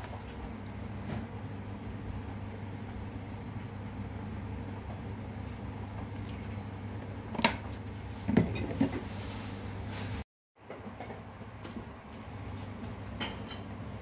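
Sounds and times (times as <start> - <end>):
steady low hum: 0.0 - 10.2
kitchenware clinking: 13.2 - 13.8.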